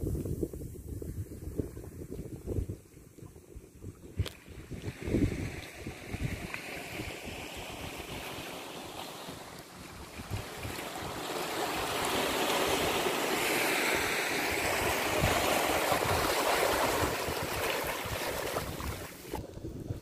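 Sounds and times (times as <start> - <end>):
wind buffeting microphone: 0.0 - 20.0
small waves washing over rocks: 4.8 - 19.4.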